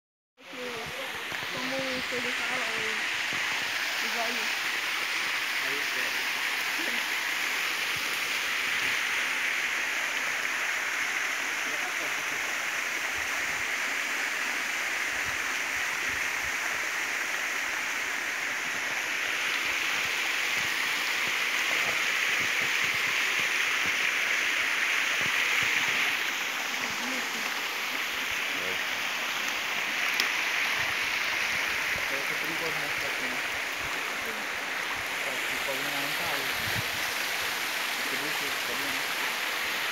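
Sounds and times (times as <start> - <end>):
waterfall rushing over rocks: 0.4 - 39.9.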